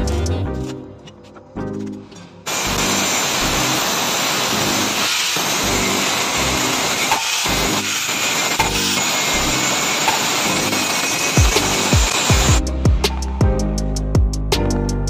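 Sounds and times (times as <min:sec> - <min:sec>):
music with steady beat: 0:00.0 - 0:02.2, 0:11.3 - 0:15.0
angle grinder grinding steel: 0:02.5 - 0:12.6.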